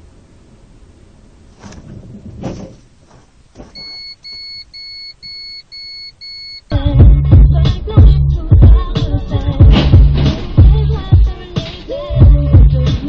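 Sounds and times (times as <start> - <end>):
electronic warning beeps: 3.7 - 6.7
loud music: 6.7 - 13.0
low cabin rumble: 6.8 - 12.9.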